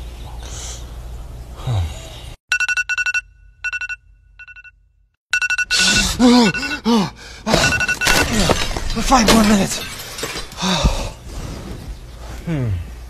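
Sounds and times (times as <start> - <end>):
person groaning sleepily: 1.6 - 2.2, 12.4 - 13.0
pulsing two-tone alarm beep: 2.5 - 4.7, 5.3 - 7.0, 7.6 - 8.2.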